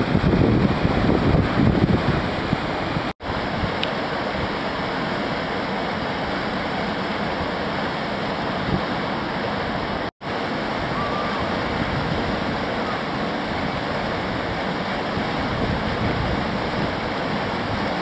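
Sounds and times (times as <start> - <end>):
whitewater rushing: 0.0 - 18.0.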